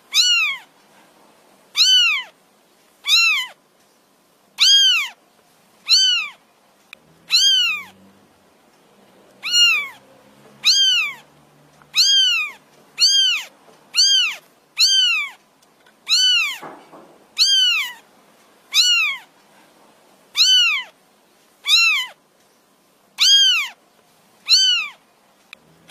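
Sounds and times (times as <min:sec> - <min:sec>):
kitten meowing: 0:00.1 - 0:00.7, 0:01.8 - 0:02.3, 0:03.0 - 0:03.6, 0:04.6 - 0:05.2, 0:05.8 - 0:06.4, 0:07.2 - 0:08.0, 0:09.4 - 0:10.0, 0:10.6 - 0:15.4, 0:16.1 - 0:16.7, 0:17.4 - 0:18.0, 0:18.7 - 0:19.3, 0:20.4 - 0:21.0, 0:21.6 - 0:22.2, 0:23.2 - 0:23.8, 0:24.4 - 0:25.0.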